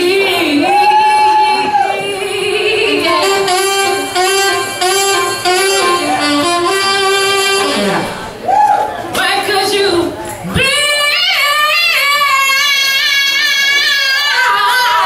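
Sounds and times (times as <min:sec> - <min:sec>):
woman singing: 0:00.0 - 0:05.8, 0:09.2 - 0:15.0
live band music: 0:02.0 - 0:15.0
saxophone phrase: 0:02.7 - 0:08.5.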